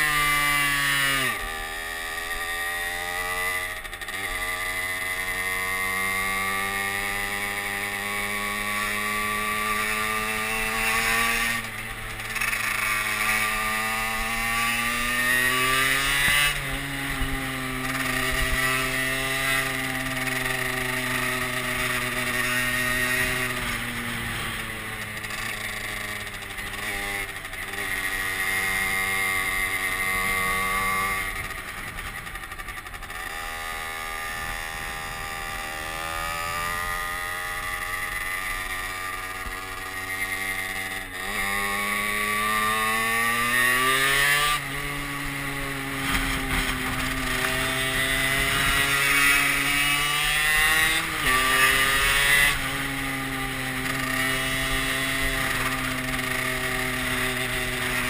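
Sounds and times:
moped engine accelerating: 0:00.0 - 0:58.0.

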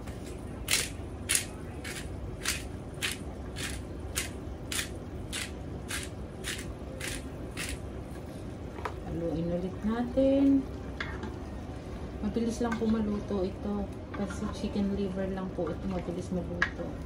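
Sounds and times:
pepper grinder crunching: 0:00.7 - 0:07.8.

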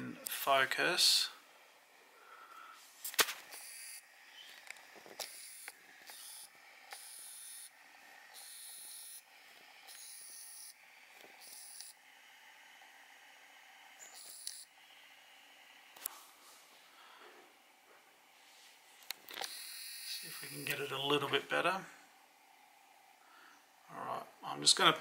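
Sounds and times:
camera autofocus motor whirring: 0:03.2 - 0:16.1, 0:19.0 - 0:20.8.

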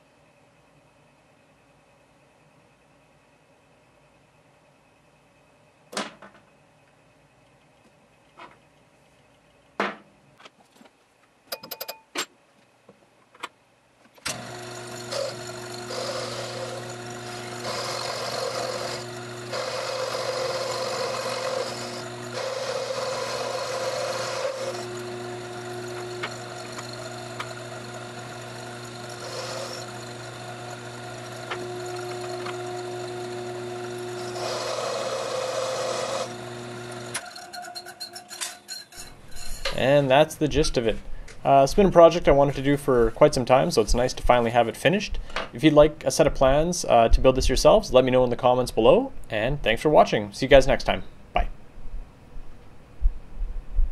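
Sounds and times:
metal parts clicking and tapping: 0:11.5 - 0:12.3
lathe motor humming: 0:14.3 - 0:38.1
cutting tool scraping workpiece: 0:14.3 - 0:39.8.

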